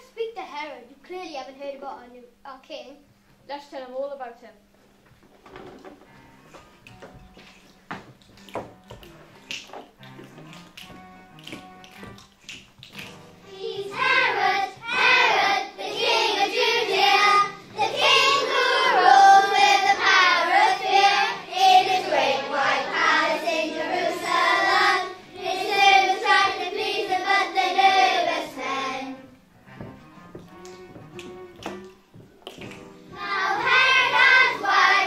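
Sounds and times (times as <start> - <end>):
musical backing track: 5.2 - 35.0
children singing: 13.5 - 29.3, 33.1 - 35.0.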